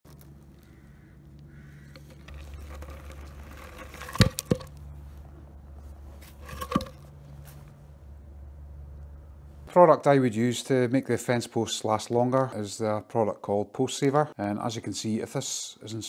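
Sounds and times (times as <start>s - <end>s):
steady low hum: 0.1s - 9.8s.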